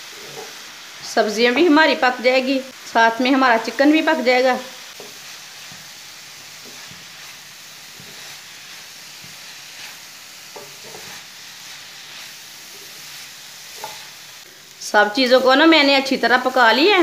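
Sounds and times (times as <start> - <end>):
wooden spatula scraping a pan: 0.0 - 0.6, 4.9 - 14.5
food sizzling in a frying pan: 0.0 - 17.0.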